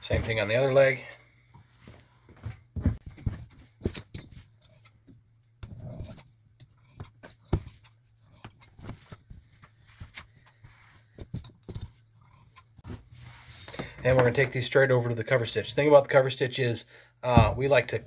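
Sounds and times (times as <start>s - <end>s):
fabric rubbing: 12.8s - 13.7s.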